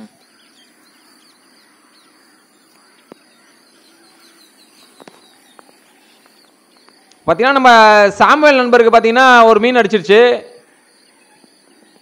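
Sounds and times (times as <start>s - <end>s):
birds calling: 0.0s - 12.0s.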